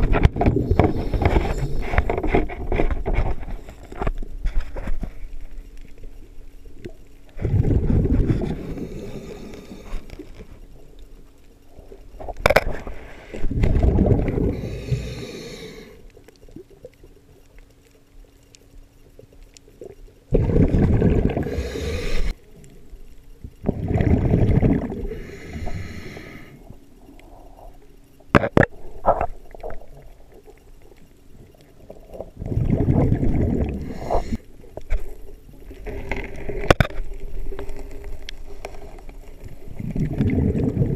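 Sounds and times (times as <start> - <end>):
exhaled bubbles underwater: 7.3 - 9.8, 13.4 - 15.8, 19.9 - 22.3, 23.5 - 26.4, 31.8 - 34.4, 39.2 - 40.9.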